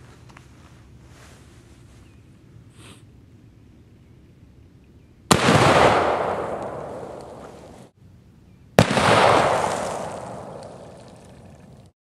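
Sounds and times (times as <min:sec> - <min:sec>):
rifle shots with rolling echo: 0:05.3 - 0:07.9, 0:08.8 - 0:11.3.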